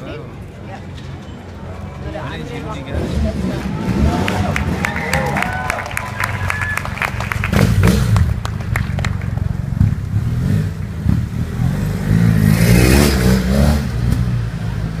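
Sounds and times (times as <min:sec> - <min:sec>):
motorcycle engine revving: 0:07.3 - 0:15.0.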